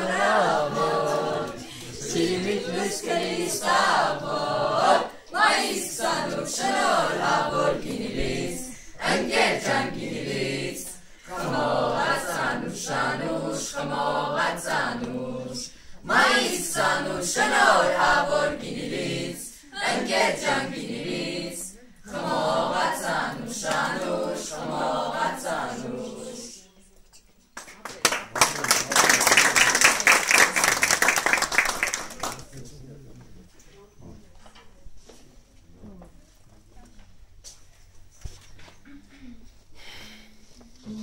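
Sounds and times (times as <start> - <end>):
choir singing unaccompanied: 0.0 - 26.6.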